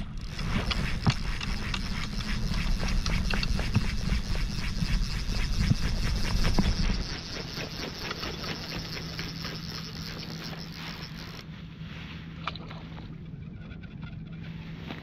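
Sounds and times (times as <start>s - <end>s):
fly reel ratcheting: 0.0s - 11.4s.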